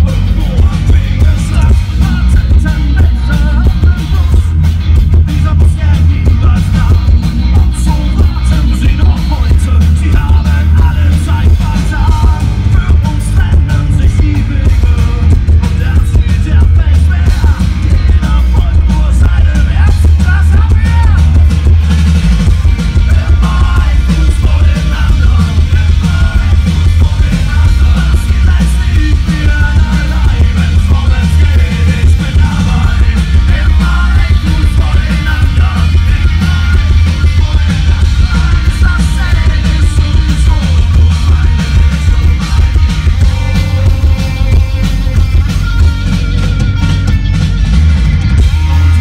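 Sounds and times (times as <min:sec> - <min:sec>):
rock band playing live: 0:00.0 - 0:49.0
person shouting and singing: 0:05.4 - 0:21.6.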